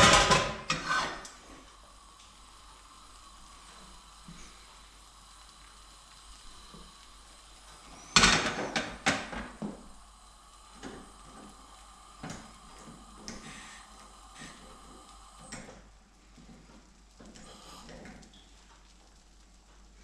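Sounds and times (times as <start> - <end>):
frying pan clattering on stove: 0.0 - 0.9.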